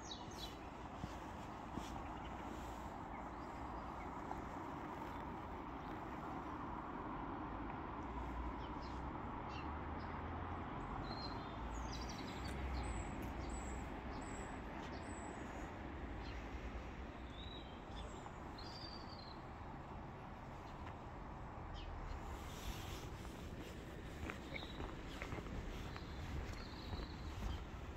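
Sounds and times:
small birds chirping: 0.0 - 6.5, 10.9 - 19.7, 21.7 - 27.9.

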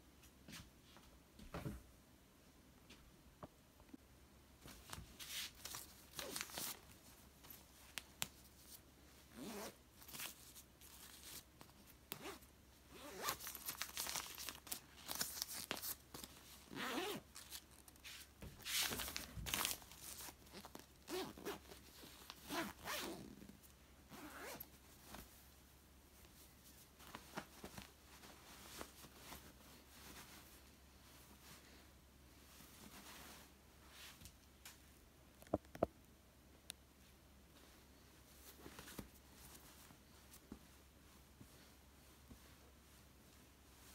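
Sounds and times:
handling of pillow cover: 4.6 - 34.2, 37.0 - 43.9
zipper being pulled: 9.3 - 9.8, 12.2 - 13.4, 16.7 - 17.2, 21.0 - 21.7, 22.4 - 23.5, 24.1 - 24.7.

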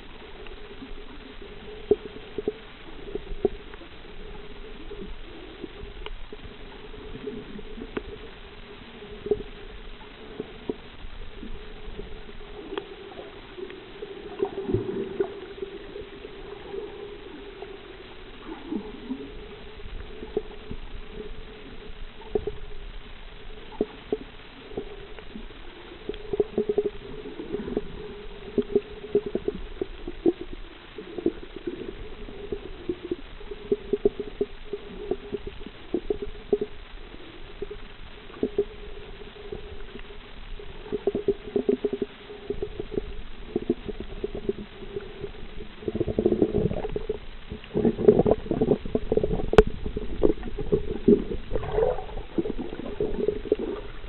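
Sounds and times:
muffled underwater hum: 0.0 - 54.0
underwater clicks and pops: 46.0 - 54.0.

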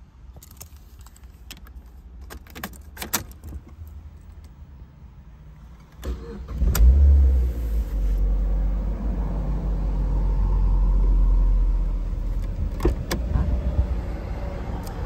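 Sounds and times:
car engine revving and idling: 6.0 - 15.0.

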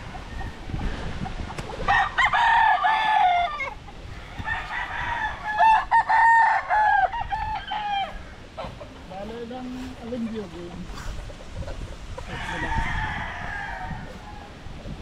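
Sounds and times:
roosters crowing: 0.0 - 9.1, 10.1 - 15.0.

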